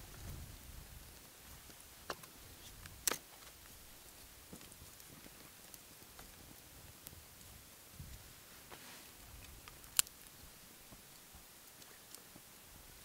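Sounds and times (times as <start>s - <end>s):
dry wooden sticks snapping: 2.1s - 3.6s, 9.4s - 10.3s.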